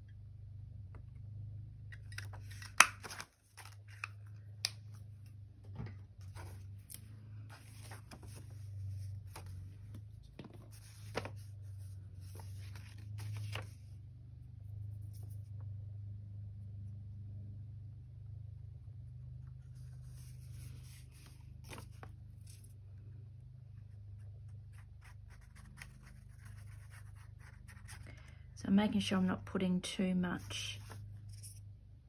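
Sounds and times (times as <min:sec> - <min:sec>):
low steady hum: 0:00.0 - 0:32.0
paper rustling: 0:06.2 - 0:13.9, 0:19.8 - 0:22.8, 0:24.8 - 0:28.2, 0:30.4 - 0:31.6.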